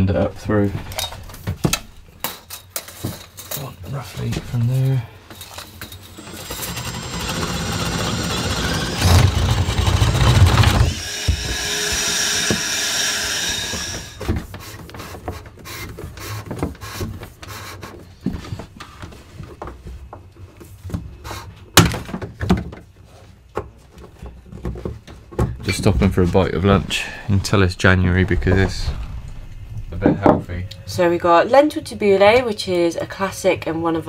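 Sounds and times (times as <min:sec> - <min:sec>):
loud rubbing and scraping: 0:06.1 - 0:14.8, 0:25.8 - 0:30.3
steady whine: 0:26.1 - 0:32.1.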